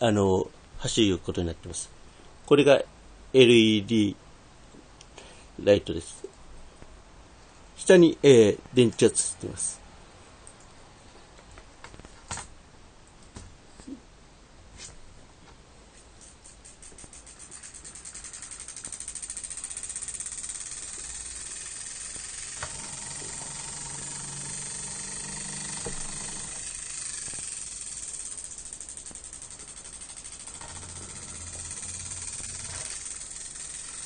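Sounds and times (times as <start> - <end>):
electromagnet motor ticking and whirring: 17.2 - 34.0.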